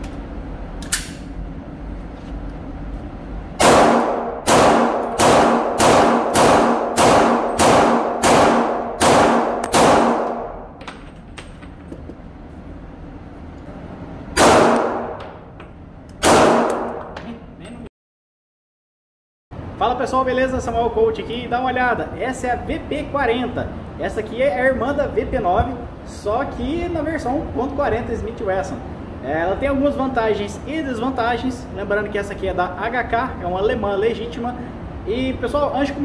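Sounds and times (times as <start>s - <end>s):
pistol shots with echo: 3.6s - 10.7s, 14.4s - 15.2s, 16.2s - 17.2s.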